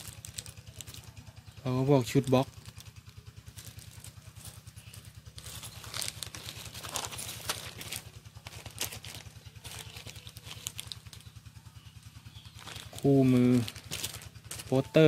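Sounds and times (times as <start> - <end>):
paper and plastic bag crinkling: 0.0 - 11.4, 12.3 - 15.0
low pulsing hum: 0.0 - 15.0.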